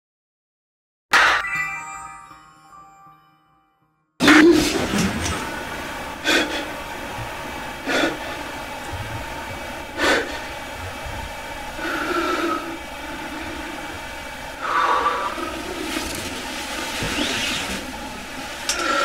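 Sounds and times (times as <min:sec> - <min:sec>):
steady background hiss: 0:04.6 - 0:19.0.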